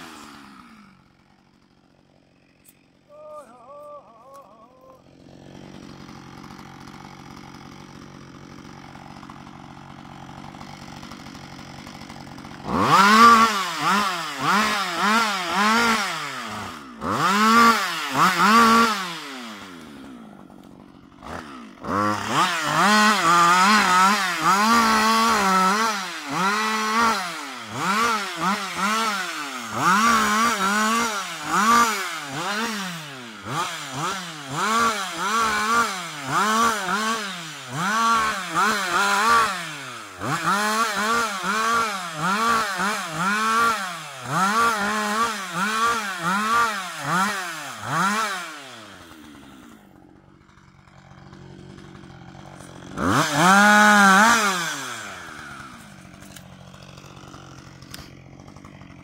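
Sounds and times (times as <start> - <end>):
chainsaw revving: 0.0 - 59.0.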